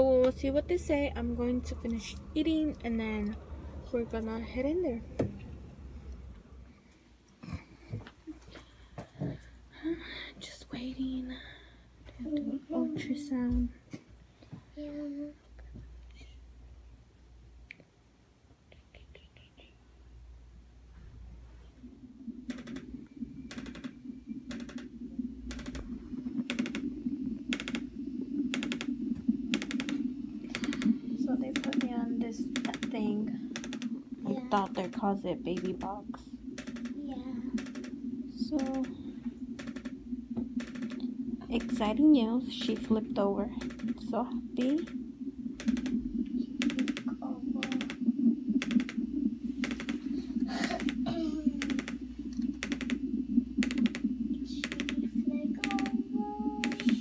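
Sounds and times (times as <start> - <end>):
doppler fetal heartbeat: 20.8 - 57.0
sharp clicks: 22.4 - 34.0, 34.6 - 42.0, 42.6 - 45.0, 45.6 - 46.0, 46.6 - 56.0, 56.6 - 57.0.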